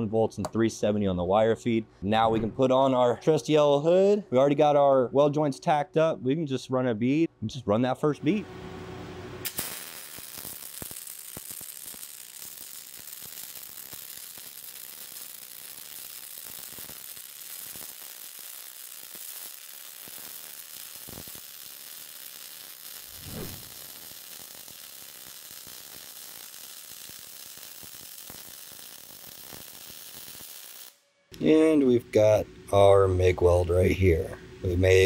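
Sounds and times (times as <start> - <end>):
welding arc crackling: 9.4 - 31.0.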